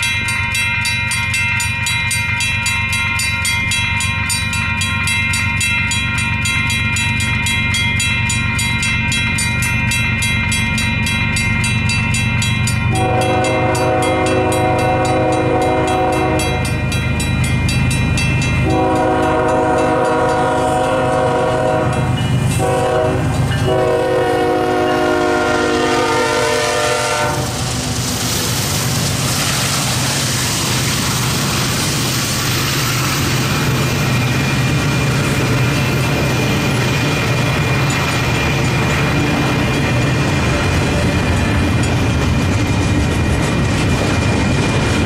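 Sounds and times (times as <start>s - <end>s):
crossing bell ringing: 0.0s - 27.8s, 30.0s - 42.7s
train wheel noise: 0.0s - 45.0s
locomotive horn blasts: 12.9s - 16.8s, 18.6s - 27.7s.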